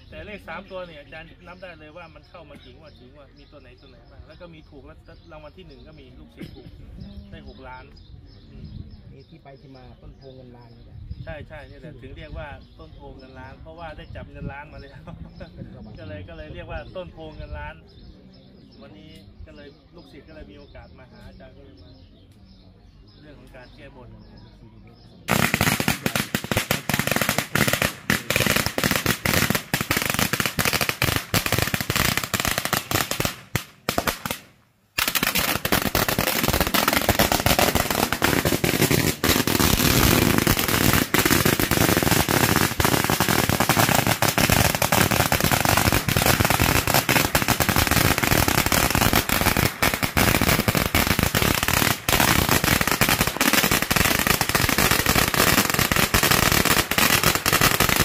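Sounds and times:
firecrackers cracking: 0:25.3 - 0:58.0.

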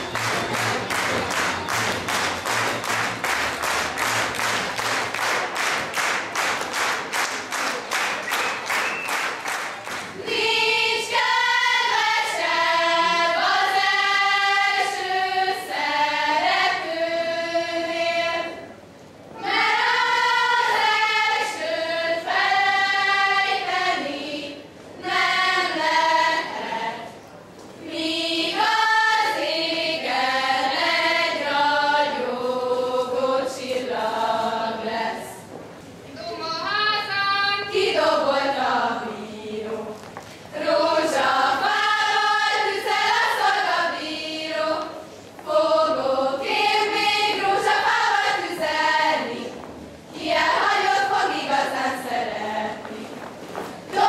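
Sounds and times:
audience clapping in time: 0:00.0 - 0:10.2
girls singing folk song: 0:10.1 - 0:27.2, 0:27.8 - 0:54.0.

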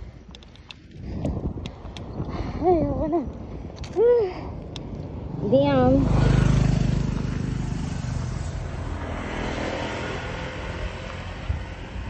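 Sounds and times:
road noise: 0:00.0 - 0:12.0
motorcycle passing by: 0:05.0 - 0:12.0.

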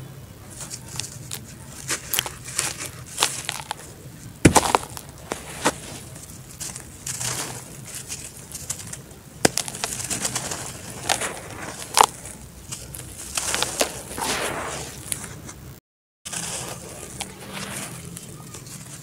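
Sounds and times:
dirt lumps cracking: 0:00.5 - 0:15.6
dirt rubbed by hand: 0:00.5 - 0:15.6, 0:16.3 - 0:19.0.

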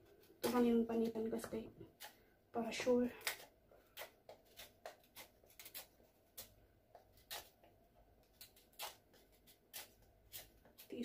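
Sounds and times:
knife scraping squash skin: 0:03.2 - 0:11.0.

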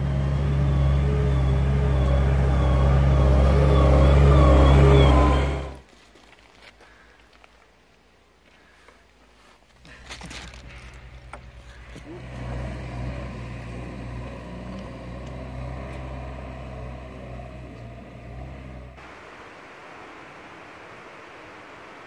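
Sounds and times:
engine running: 0:00.0 - 0:05.8, 0:09.8 - 0:19.0.

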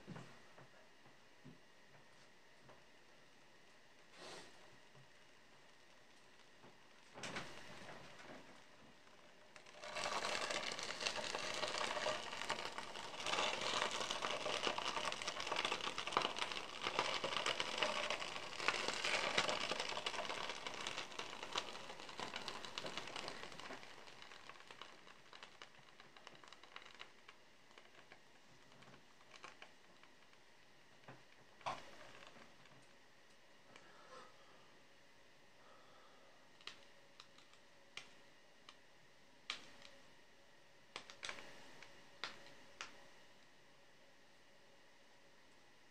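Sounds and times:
butter sizzling in hot oil: 0:09.6 - 0:28.0.

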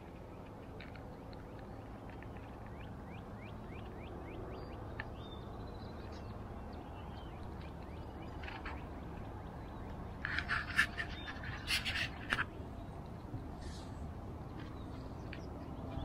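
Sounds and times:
birds chirping: 0:00.0 - 0:16.0
low background noise: 0:00.0 - 0:16.0.

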